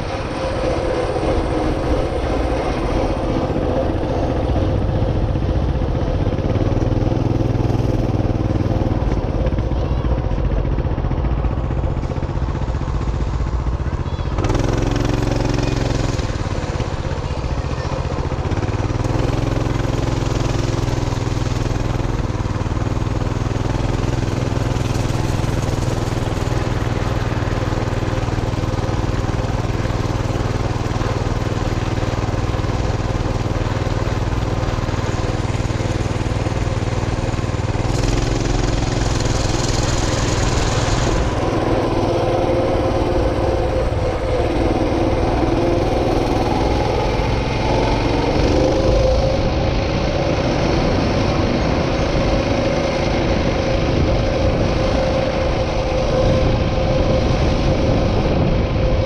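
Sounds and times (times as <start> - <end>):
small vehicle engine running: 0.0 - 59.0
wind on microphone: 34.2 - 59.0.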